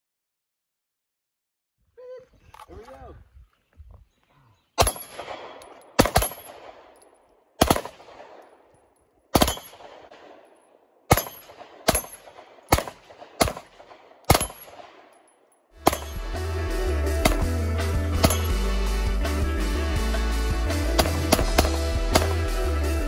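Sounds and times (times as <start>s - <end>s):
pistol shots with echo: 4.8s - 16.4s, 17.2s - 17.5s, 18.1s - 18.7s, 20.9s - 22.6s
music with heavy bass beat: 15.8s - 23.0s.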